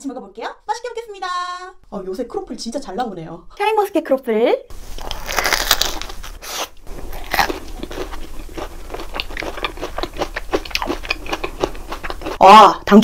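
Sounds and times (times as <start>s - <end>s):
crisp crunching while chewing: 4.9s - 12.4s.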